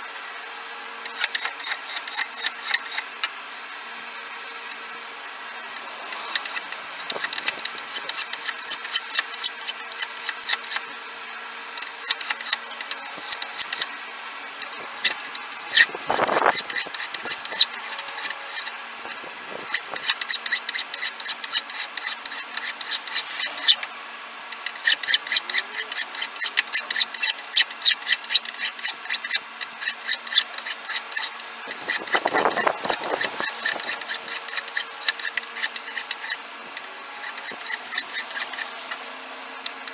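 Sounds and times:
hand file rasping on wood: 1.1 - 3.2, 5.8 - 10.8, 11.8 - 13.9, 14.6 - 23.9, 24.6 - 36.4, 37.2 - 38.8.

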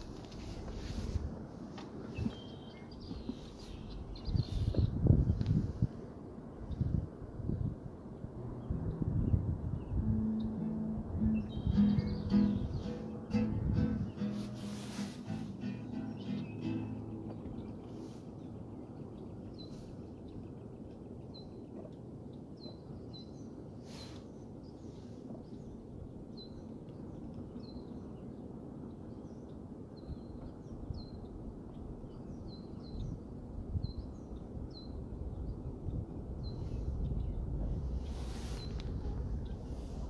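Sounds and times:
songbird chirping: 0.0 - 5.7, 8.0 - 40.0
low outdoor rumble: 0.0 - 19.4.

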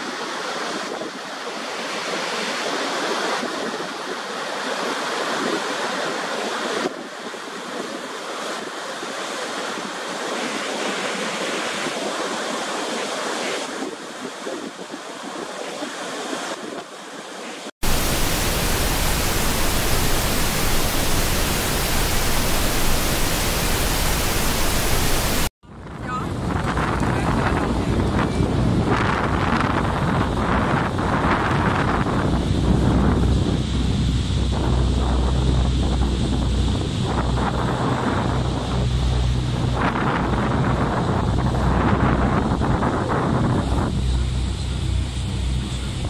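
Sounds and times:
waterfall roaring: 17.4 - 25.5
even hiss: 17.8 - 25.5.

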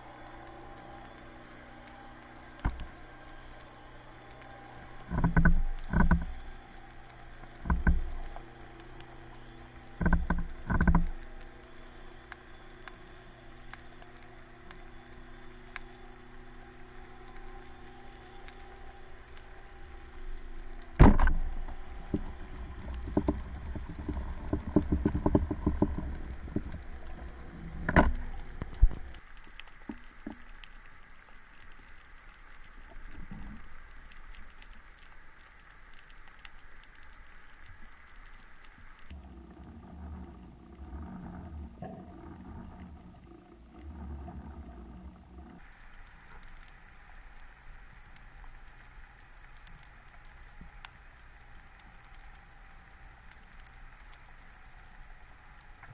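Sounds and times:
steady low hum: 0.0 - 55.9
clicking and rattling among rocks: 21.0 - 29.2.

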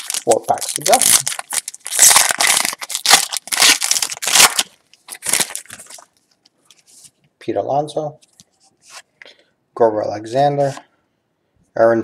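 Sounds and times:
wrapper tearing and crinkling: 0.0 - 6.2.

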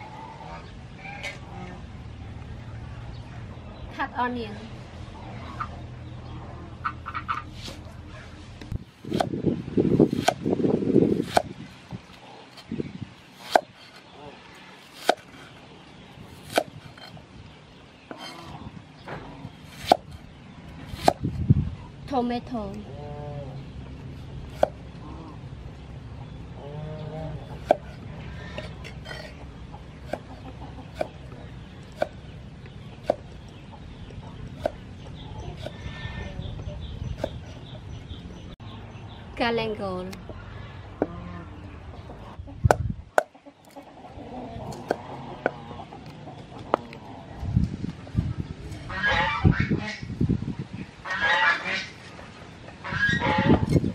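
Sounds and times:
chickens clucking: 0.0 - 2.1, 5.0 - 10.5, 22.7 - 38.7, 40.2 - 53.9
cleaver chopping on wooden block: 11.2 - 11.5, 13.4 - 13.7, 15.0 - 15.3, 19.8 - 20.1, 20.9 - 21.2, 31.9 - 32.2.

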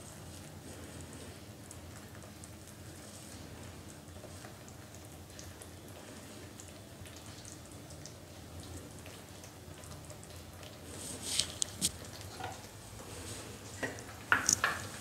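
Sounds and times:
gravy sizzling and popping: 0.0 - 15.0.

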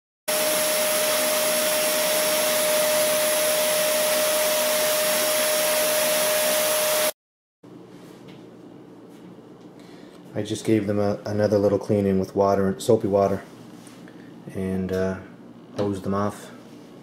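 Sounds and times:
vacuum cleaner running: 0.3 - 7.2.

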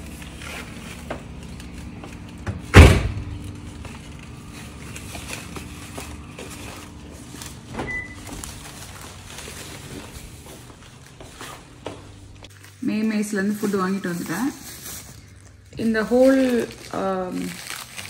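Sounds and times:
car hatch slammed shut: 2.7 - 3.3.

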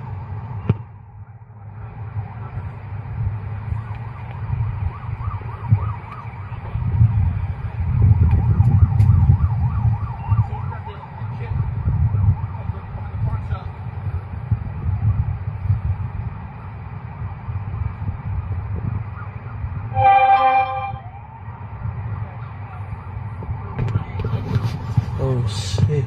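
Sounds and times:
siren yelping: 8.3 - 11.3, 19.1 - 21.4.

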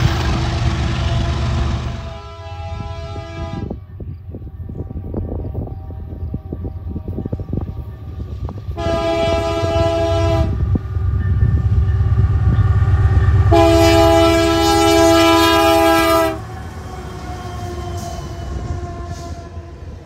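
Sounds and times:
locomotive engine rumble: 0.0 - 20.0
locomotive air horn blasts: 0.8 - 3.8, 4.6 - 10.8, 13.4 - 20.0.

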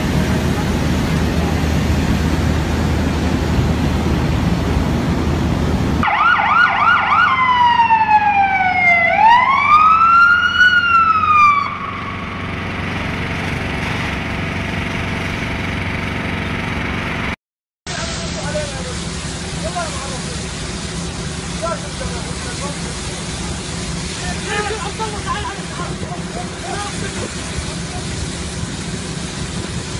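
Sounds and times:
steady background noise: 0.0 - 17.3, 17.9 - 29.9
emergency vehicle siren: 6.0 - 13.8.

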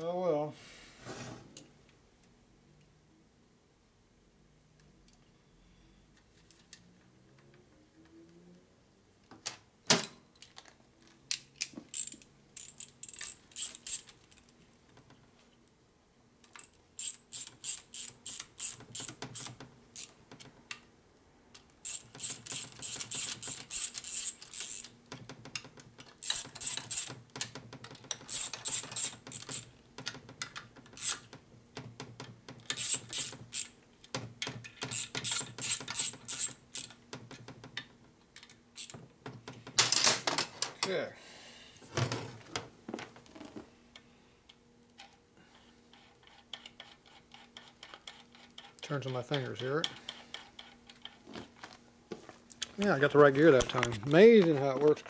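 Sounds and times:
ratchet wrench clicking: 11.9 - 14.1, 16.5 - 20.2, 21.8 - 24.9, 26.2 - 27.1, 28.3 - 29.7, 31.0 - 31.2, 32.7 - 33.8, 34.9 - 37.0.

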